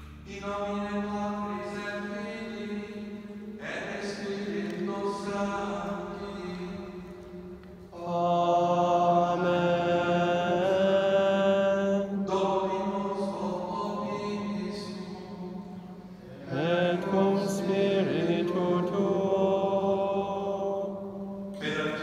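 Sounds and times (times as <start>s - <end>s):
person chanting: 0.0s - 22.0s.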